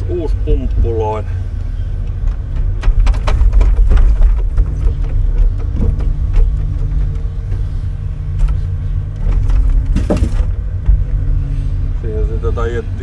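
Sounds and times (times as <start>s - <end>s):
crane engine and hydraulic hum: 0.0s - 13.0s
knocks of wood and metal: 2.0s - 7.7s, 8.3s - 11.4s
logs clattering: 2.0s - 11.3s.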